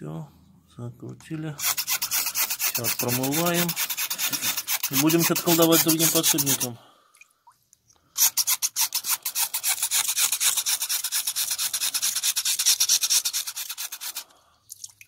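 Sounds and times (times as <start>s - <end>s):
stiff brush scrubbing wet metal: 1.6s - 6.8s, 8.2s - 14.4s.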